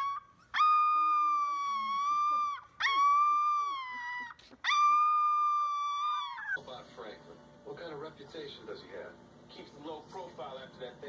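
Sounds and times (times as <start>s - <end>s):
puppy howling: 0.0s - 6.6s.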